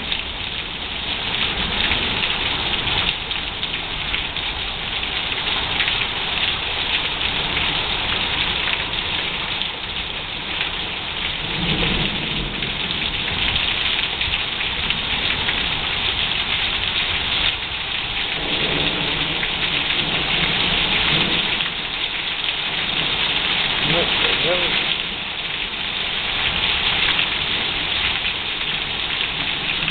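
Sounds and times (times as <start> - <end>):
heavy rain: 0.0 - 29.9
thunder rumbling: 11.4 - 15.8, 18.3 - 22.0.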